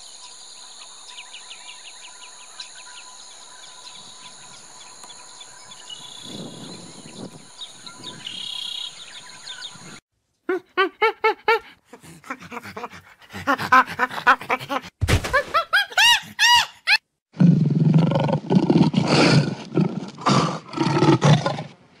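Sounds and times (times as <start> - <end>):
monkey calls: 10.5 - 14.9, 15.7 - 17.0
lion roar with growl: 17.3 - 21.8.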